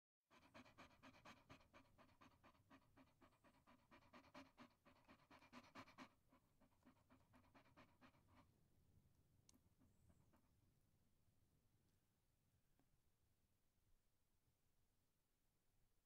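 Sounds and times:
dog panting: 0.3 - 8.6.

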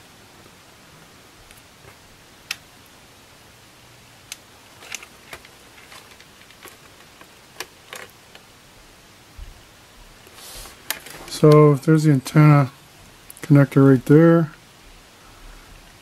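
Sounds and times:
low steady hiss: 0.0 - 16.0.

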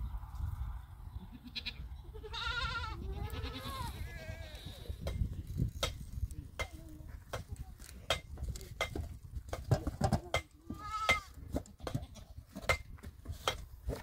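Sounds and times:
goat bleating: 1.2 - 4.9, 10.6 - 12.4
goat herd hooves clicking and knocking: 5.0 - 14.0.

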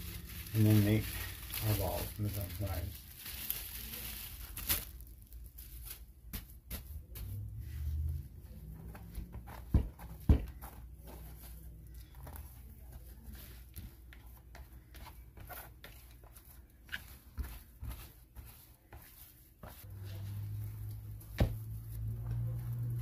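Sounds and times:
dough squelching in plastic bowl: 6.0 - 23.0.

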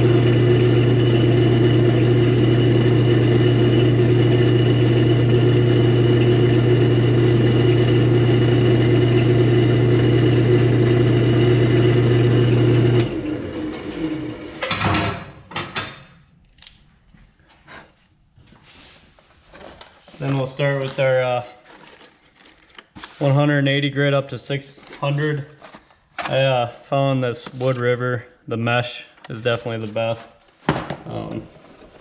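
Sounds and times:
rough wood cutting noise: 0.0 - 14.5
lathe motor hum winding down: 0.0 - 14.9.

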